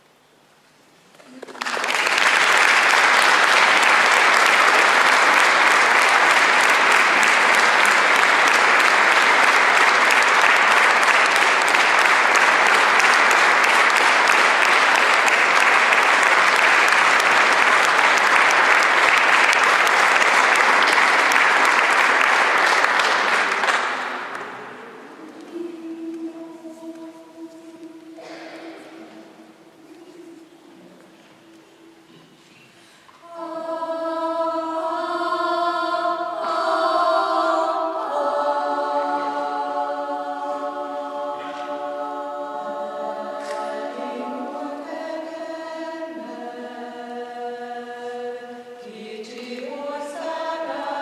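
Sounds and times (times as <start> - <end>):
audience applauding: 1.2 - 24.8.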